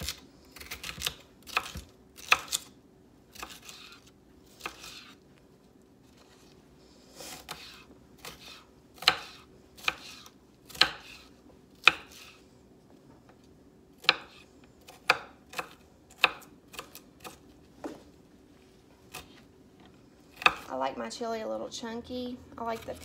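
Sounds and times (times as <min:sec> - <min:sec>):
knife chopping on wooden board: 0:00.0 - 0:02.7, 0:03.3 - 0:04.0, 0:04.6 - 0:05.2, 0:07.3 - 0:12.4, 0:14.0 - 0:17.4, 0:20.4 - 0:20.7.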